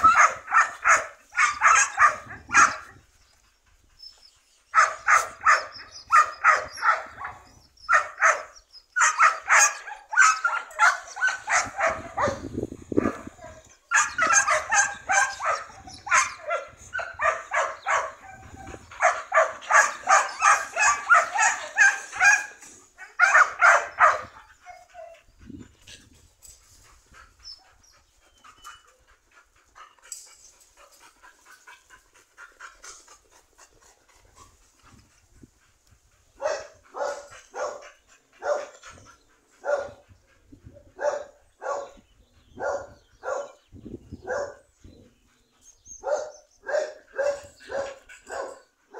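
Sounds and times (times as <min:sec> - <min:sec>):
dog barking: 0:00.0 - 0:02.8, 0:04.8 - 0:22.6, 0:23.2 - 0:24.4, 0:36.4 - 0:37.8, 0:38.4 - 0:38.7, 0:39.6 - 0:40.0, 0:41.0 - 0:42.0, 0:42.6 - 0:43.6, 0:44.2 - 0:44.6, 0:46.0 - 0:48.6.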